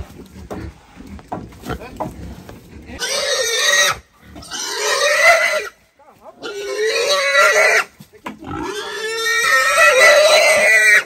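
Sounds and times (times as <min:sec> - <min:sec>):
young pig squealing: 0:03.0 - 0:05.8, 0:06.4 - 0:11.0.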